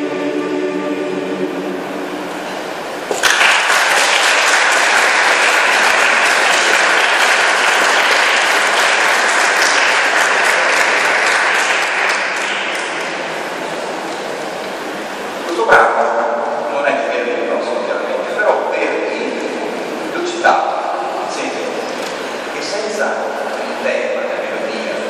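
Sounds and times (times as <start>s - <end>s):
mixed choir singing a chord: 0.0s - 3.0s
audience applause: 3.1s - 14.0s.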